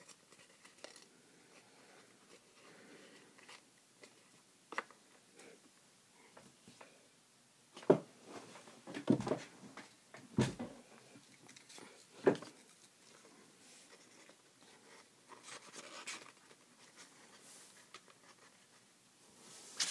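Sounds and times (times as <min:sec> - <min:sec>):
paper rustling: 0:13.8 - 0:18.8, 0:19.6 - 0:19.9.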